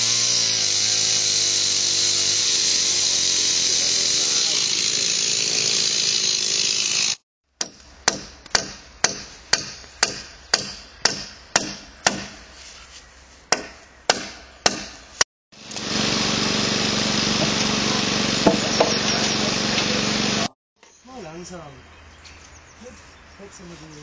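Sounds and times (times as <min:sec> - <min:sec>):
hammer striking wood: 0:07.6 - 0:12.4, 0:13.5 - 0:15.0, 0:18.4 - 0:19.0.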